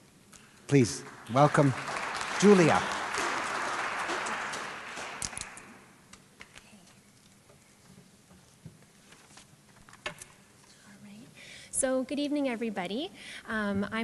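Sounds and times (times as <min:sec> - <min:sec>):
audience applauding: 0:00.7 - 0:05.9.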